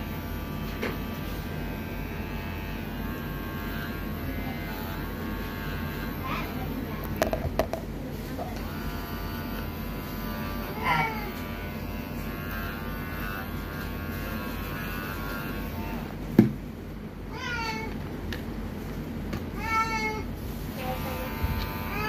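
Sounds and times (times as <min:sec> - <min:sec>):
pet clipper humming: 0:00.0 - 0:07.8, 0:08.5 - 0:16.6, 0:20.8 - 0:22.0.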